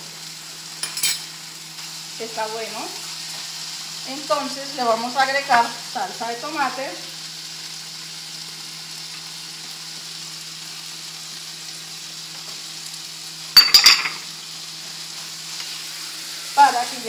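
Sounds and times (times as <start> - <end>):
food sizzling in frying pan: 0.0 - 17.0
kitchenware clinking: 0.8 - 1.3, 13.6 - 14.3.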